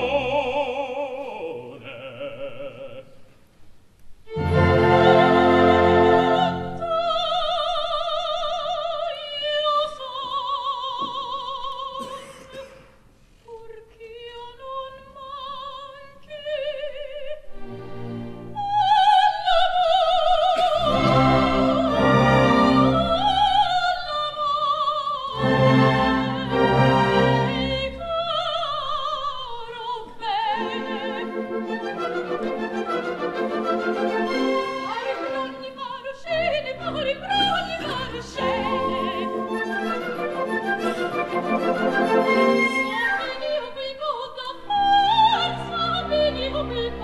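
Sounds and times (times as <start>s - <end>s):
orchestra playing: 4.3s - 7.0s, 17.6s - 18.6s, 20.8s - 23.3s, 25.4s - 28.0s, 30.5s - 35.8s, 36.4s - 43.6s
soprano singing with vibrato: 4.3s - 12.4s, 13.5s - 17.6s, 18.5s - 47.0s.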